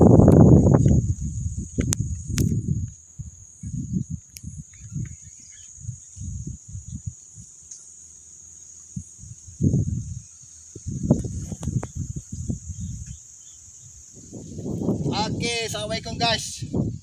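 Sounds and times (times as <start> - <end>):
insects droning: 0.0 - 17.0
low rumbles and thumps: 9.6 - 13.2.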